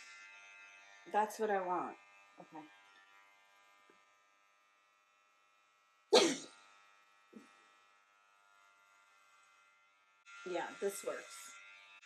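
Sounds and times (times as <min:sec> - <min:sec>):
electric hair clippers humming: 0:00.0 - 0:12.0
person coughing: 0:06.2 - 0:06.5.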